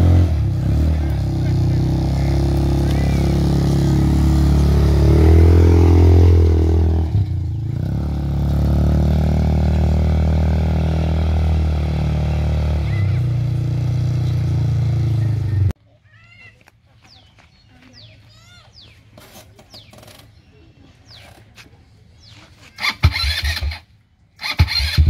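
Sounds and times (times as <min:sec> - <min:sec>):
quad bike engine revving: 0:00.0 - 0:15.8, 0:22.8 - 0:25.0.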